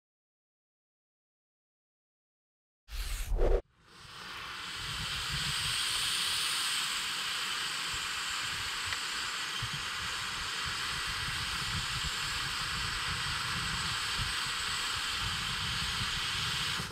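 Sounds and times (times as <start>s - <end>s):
firework fountain hissing: 3.8s - 16.9s.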